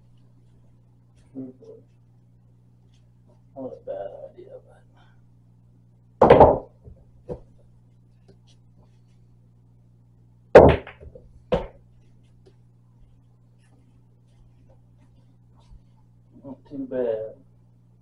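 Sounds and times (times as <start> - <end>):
pool cue striking ball: 6.2 - 6.7, 10.6 - 11.8
billiard balls clacking: 6.2 - 7.5, 10.6 - 11.8.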